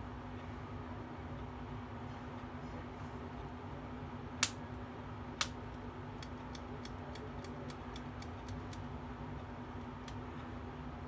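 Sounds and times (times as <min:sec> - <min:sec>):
mechanical pencil clicking: 0:06.2 - 0:08.9.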